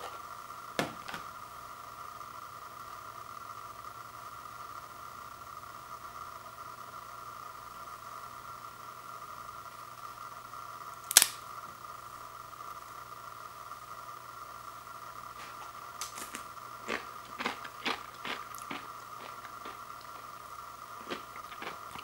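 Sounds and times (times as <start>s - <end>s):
crisp snapping: 11.1s - 11.4s
crisp pieces crackling: 16.0s - 20.3s, 21.0s - 22.0s.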